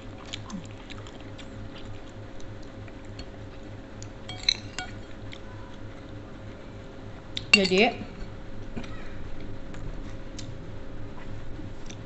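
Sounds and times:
faint steady hum: 0.0s - 12.0s
spoon clinking on ceramic plates: 4.3s - 5.0s.

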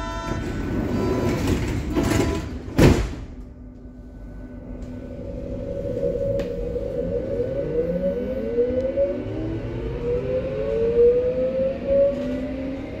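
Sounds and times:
train motors whining: 0.0s - 13.0s
train doors closing thump: 0.2s - 3.6s.

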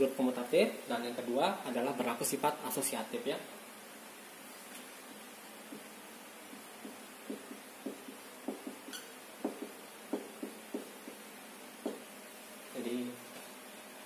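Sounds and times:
marker writing on whiteboard: 5.6s - 12.1s.

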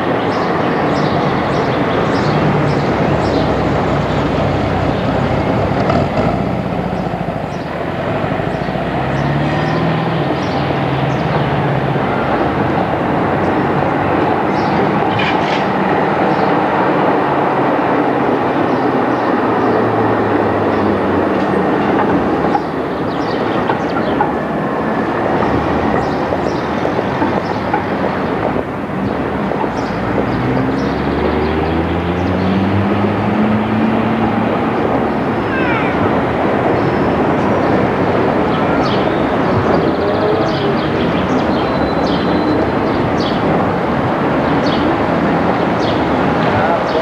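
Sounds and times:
tram wheels clattering on rails: 0.0s - 31.5s.

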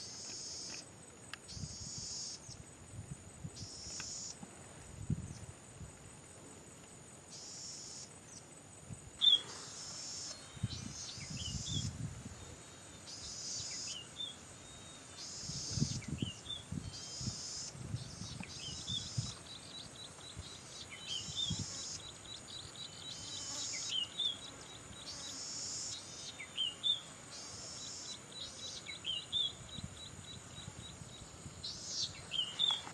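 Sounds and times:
high insect whine: 0.0s - 32.9s
bird buzzing and singing: 3.5s - 4.4s, 9.2s - 32.9s.

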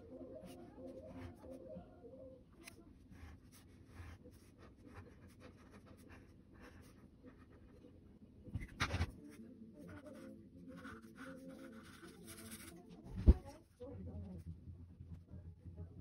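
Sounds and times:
pen scratching on paper: 2.6s - 7.9s, 8.6s - 9.2s, 9.8s - 13.6s.

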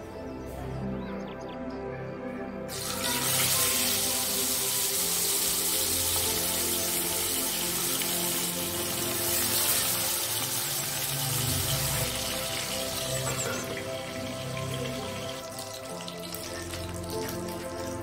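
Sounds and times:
fish sizzling in hot oil: 2.7s - 18.0s.

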